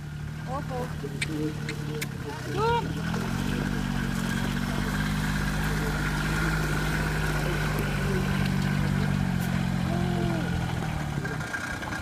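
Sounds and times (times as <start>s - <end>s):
engine running: 0.0s - 12.0s.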